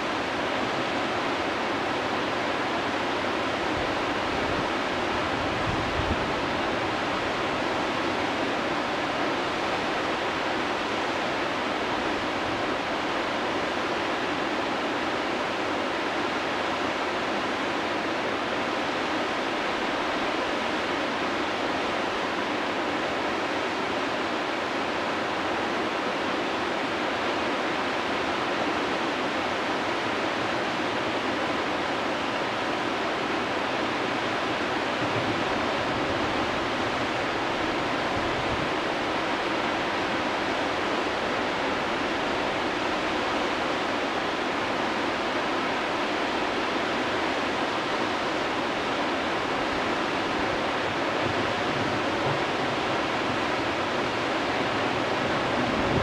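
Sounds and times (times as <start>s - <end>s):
whitewater rapids roaring: 0.0s - 56.0s.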